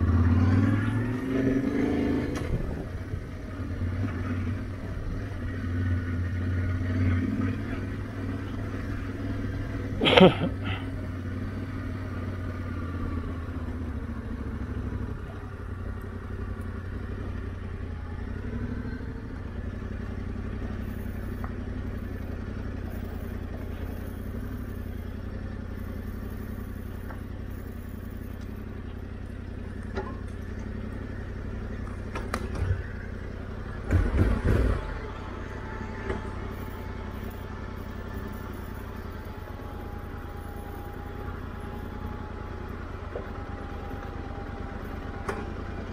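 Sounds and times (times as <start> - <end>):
motorcycle engine running: 0.0 - 45.9
loud knocks and clatter: 33.8 - 35.0.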